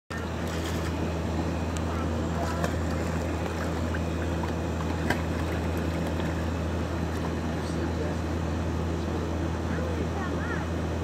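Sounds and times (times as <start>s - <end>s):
low machine hum: 0.1s - 11.0s
water splashing: 0.3s - 1.0s, 2.3s - 6.5s.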